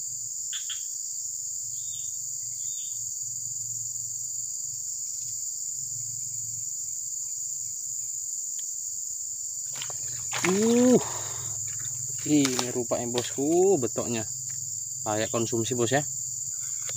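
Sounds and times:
high-pitched insect chorus: 0.0s - 16.9s.

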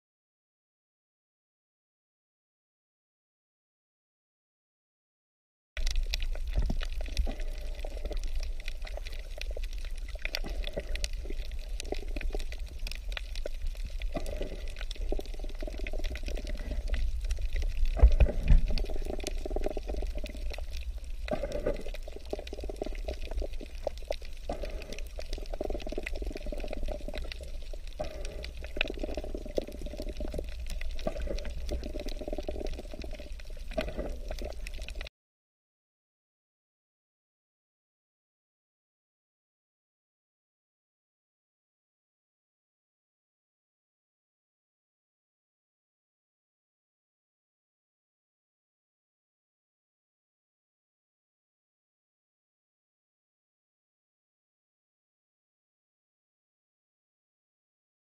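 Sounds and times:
underwater bubbling wash: 5.8s - 35.1s.

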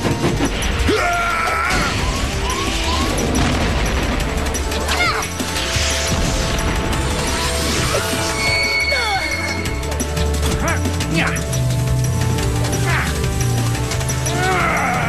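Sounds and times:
dramatic music: 0.0s - 15.0s
sweeping zap: 1.6s - 9.9s
crash sound effects: 5.5s - 8.8s.

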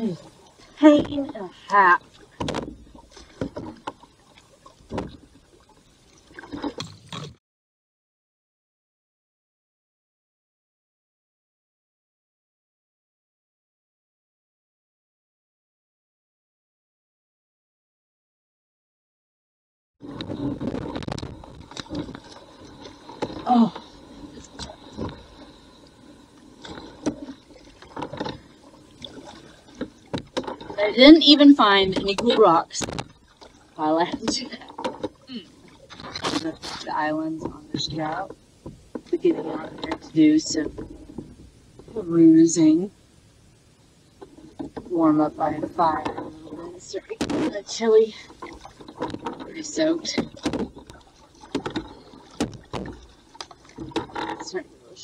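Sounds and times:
paddle strokes splashing water: 0.0s - 7.4s, 20.0s - 42.0s, 44.2s - 55.0s.

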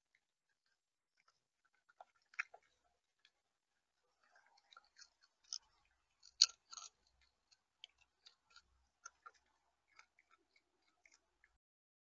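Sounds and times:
bird pecking seed: 4.0s - 11.6s.

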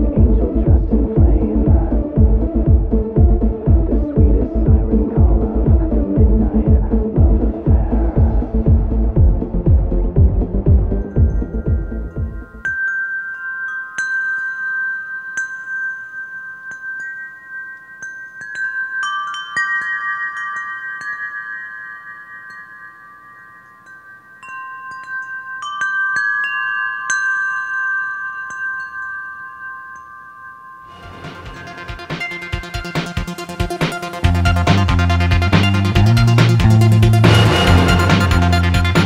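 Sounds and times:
chimes ringing: 11.0s - 39.0s.

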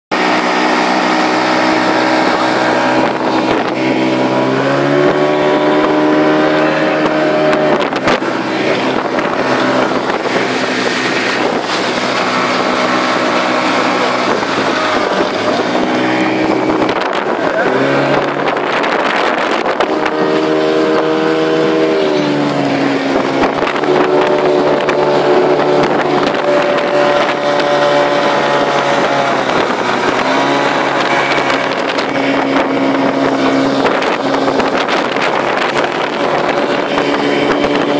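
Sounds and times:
boat wake rushing: 0.1s - 37.9s
outboard motor at full throttle: 0.1s - 37.9s.

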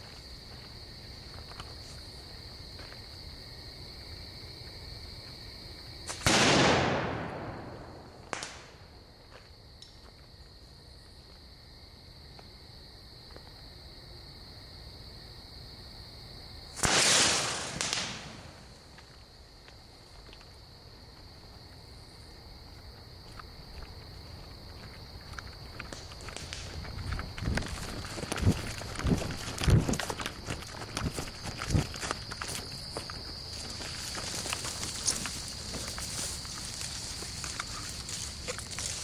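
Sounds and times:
crickets chirping: 0.0s - 39.0s
sharp crack: 6.1s - 8.8s, 16.8s - 18.7s
firework explosions: 6.1s - 8.9s, 16.8s - 18.8s.

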